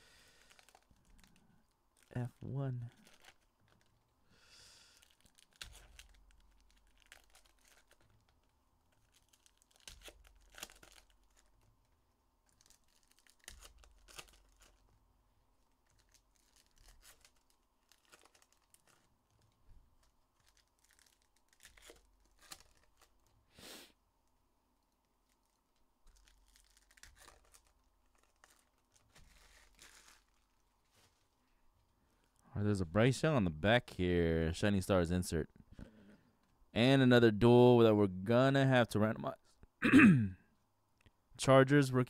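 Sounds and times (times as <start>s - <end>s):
trading cards rustling: 0.3s - 3.9s, 4.9s - 14.9s, 15.7s - 23.4s, 25.2s - 31.4s.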